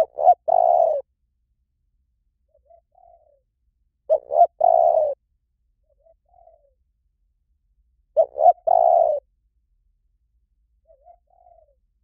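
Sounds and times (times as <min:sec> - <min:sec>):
dove cooing: 0:00.0 - 0:01.1, 0:02.5 - 0:03.5, 0:04.1 - 0:05.2, 0:05.9 - 0:06.8, 0:08.2 - 0:09.3, 0:10.8 - 0:11.9.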